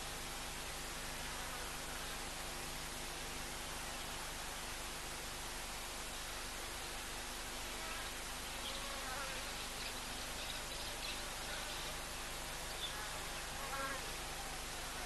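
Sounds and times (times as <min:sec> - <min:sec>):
steady hiss: 0:00.0 - 0:15.0
flying insect buzzing: 0:07.7 - 0:11.9, 0:12.7 - 0:14.1.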